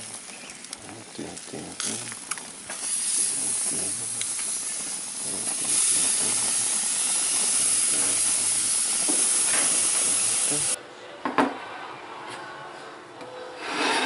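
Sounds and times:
food sizzling on a grill: 0.0 - 10.8.

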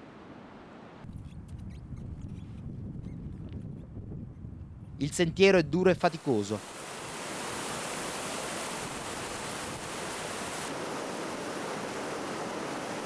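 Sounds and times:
river rushing over boulders: 6.2 - 13.0.

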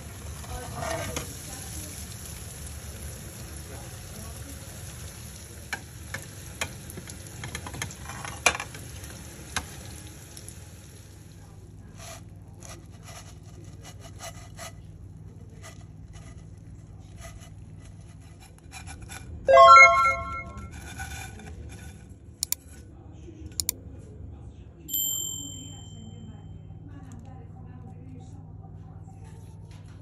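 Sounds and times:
fish sizzling in a frying pan: 0.0 - 11.4.

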